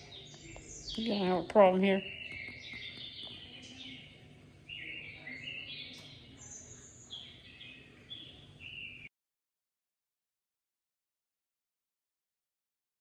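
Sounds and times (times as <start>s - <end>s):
small birds chirping: 0.0s - 9.1s.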